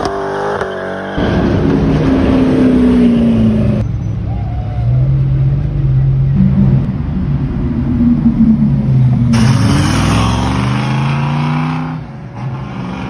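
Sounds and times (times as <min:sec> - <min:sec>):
car engine accelerating: 0:05.0 - 0:13.0.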